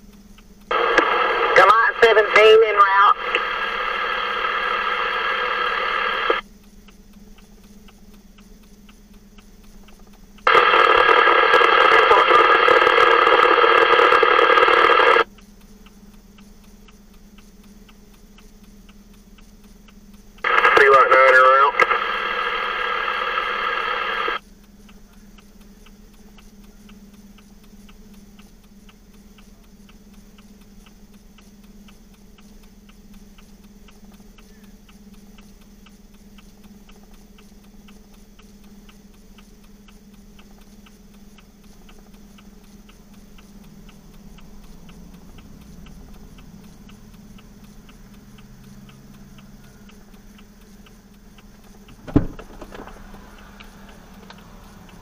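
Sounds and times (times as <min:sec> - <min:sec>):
flasher relay ticking: 0:00.0 - 0:11.9, 0:12.8 - 0:20.7, 0:21.4 - 0:55.0
two-way radio transmission: 0:00.7 - 0:06.4, 0:10.4 - 0:15.3, 0:20.4 - 0:24.4.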